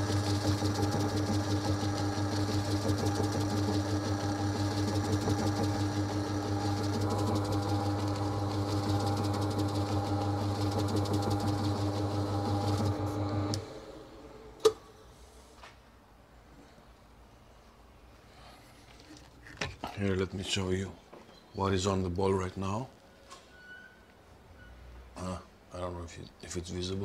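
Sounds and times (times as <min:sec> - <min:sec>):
spinner motor humming: 0:00.0 - 0:13.8.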